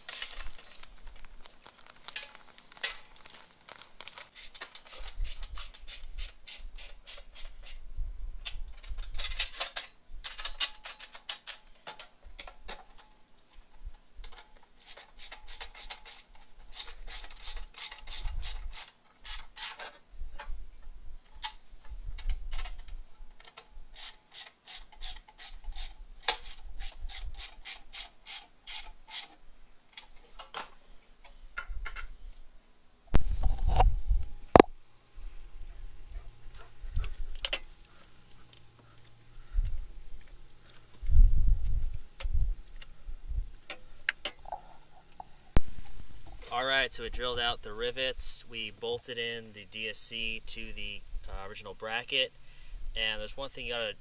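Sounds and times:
ratcheting wrench clicking: 4.2 - 7.8, 14.8 - 19.8.

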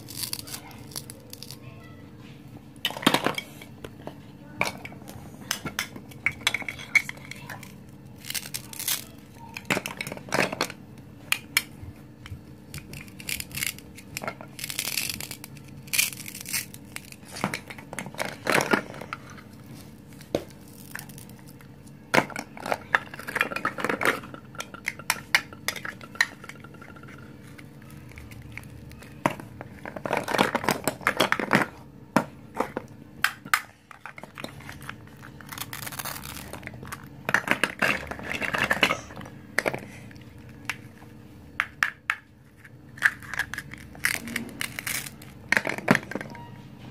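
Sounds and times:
plastic toy pieces clacking: 0.0 - 1.6, 4.6 - 11.7, 12.7 - 19.1, 20.6 - 31.7, 41.6 - 46.2.

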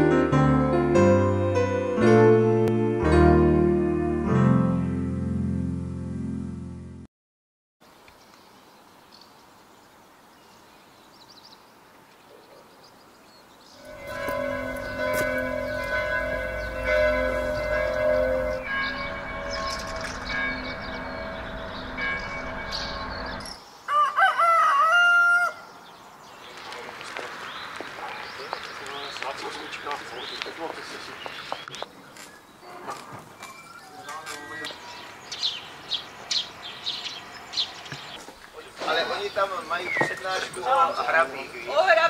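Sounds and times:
bell ringing: 13.8 - 23.5
rooster crowing: 23.9 - 25.8.

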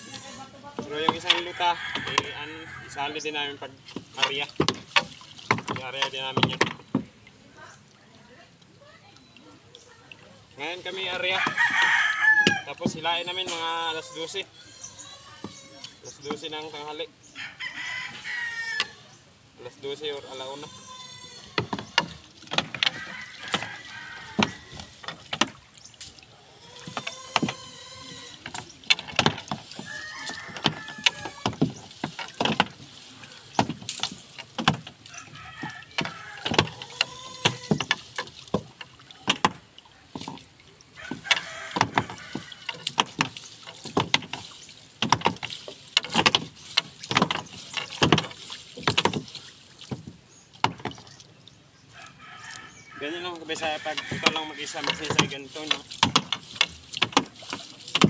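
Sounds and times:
water dripping and splashing: 0.0 - 58.0
fishing net knocks and clatters: 0.7 - 2.9, 3.5 - 7.2, 10.7 - 13.7, 21.6 - 51.3, 53.0 - 58.0.

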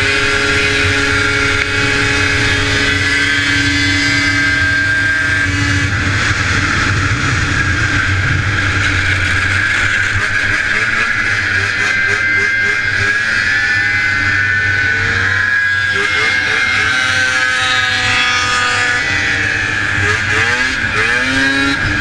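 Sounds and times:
snowmobile engine revving high: 0.0 - 22.0.

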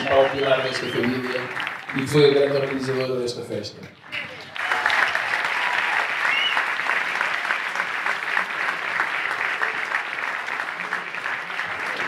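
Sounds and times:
audience applauding: 0.0 - 3.4, 4.1 - 12.0.

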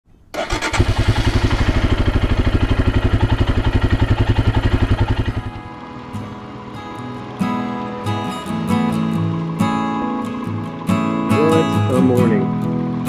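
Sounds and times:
motorcycle engine idling: 0.4 - 5.9.

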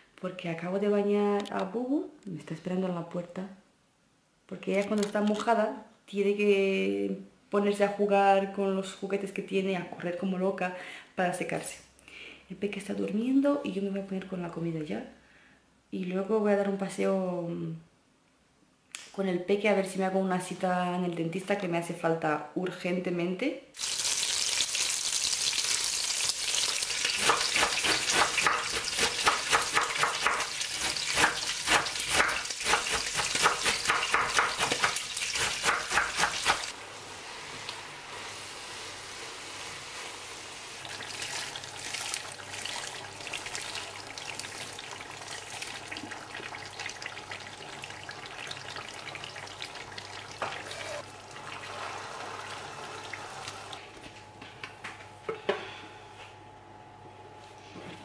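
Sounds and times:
meat sizzling in a pan: 23.8 - 43.1
vegetables sizzling quietly: 23.8 - 54.1.

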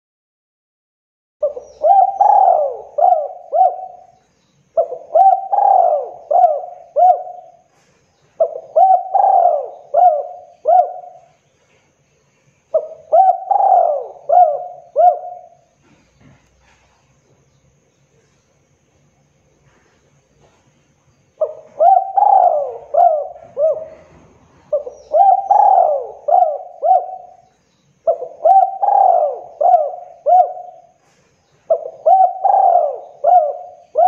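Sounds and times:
dove cooing: 1.4 - 4.2, 4.8 - 11.4, 12.7 - 16.9, 21.4 - 34.0.

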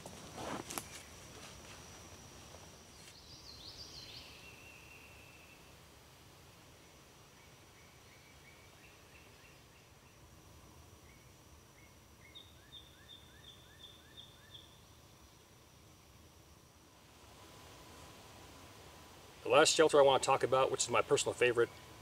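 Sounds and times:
songbird chirping: 2.9 - 5.8, 6.8 - 10.3, 11.0 - 15.5.

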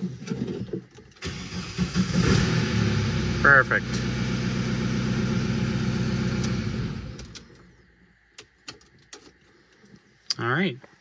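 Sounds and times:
diesel engine idling: 1.2 - 7.8.

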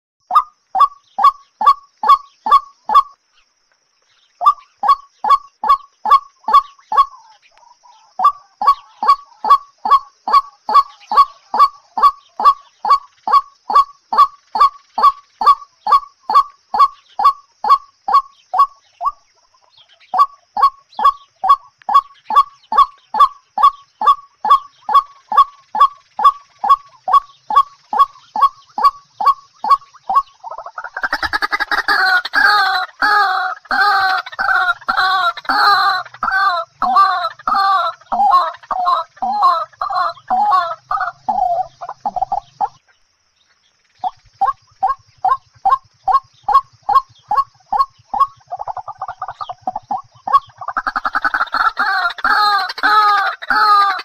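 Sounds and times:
waterhen calling harsh notes: 20.2 - 42.8, 44.0 - 54.0.

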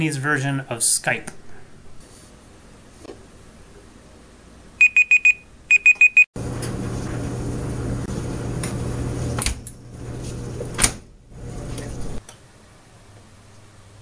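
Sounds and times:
short high timer beeps: 4.8 - 6.2.

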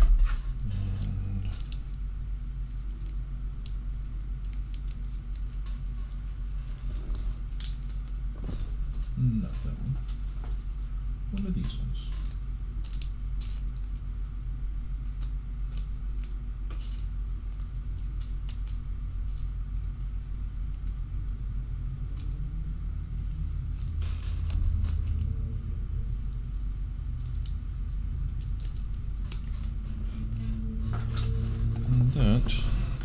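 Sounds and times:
low electrical hum: 0.0 - 33.0
trading cards clicking and rustling: 15.0 - 21.1, 27.0 - 30.0.

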